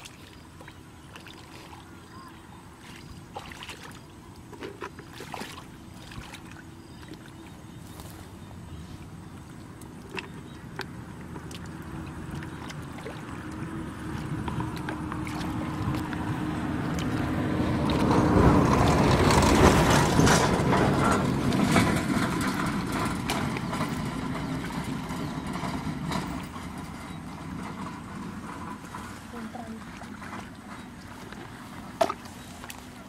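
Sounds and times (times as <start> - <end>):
hands splashing in muddy water: 2.8 - 8.2, 9.9 - 24.9, 30.1 - 33.0
engine passing by: 7.8 - 33.0.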